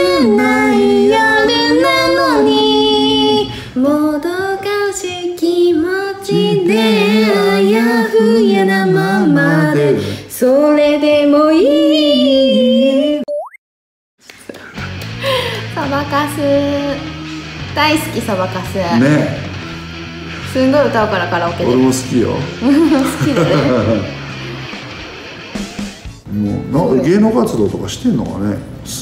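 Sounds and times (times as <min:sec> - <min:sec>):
woman singing pop song: 0:00.0 - 0:13.2, 0:15.4 - 0:17.1.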